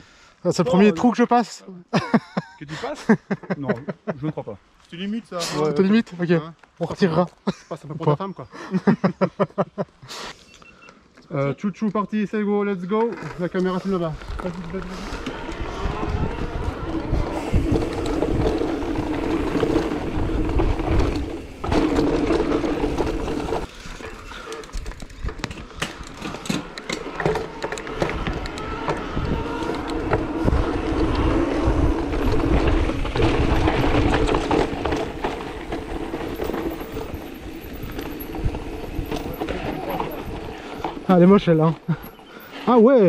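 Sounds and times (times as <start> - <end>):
tyres and frame rumbling and rattling: 13.0 - 43.0.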